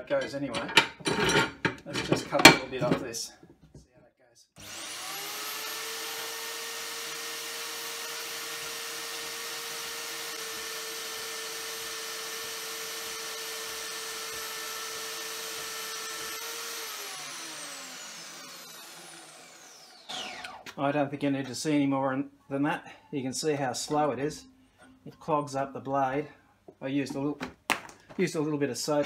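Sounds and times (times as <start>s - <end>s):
bandsaw blade cutting metal: 4.6s - 20.8s
bandsaw motor whine: 4.6s - 20.8s.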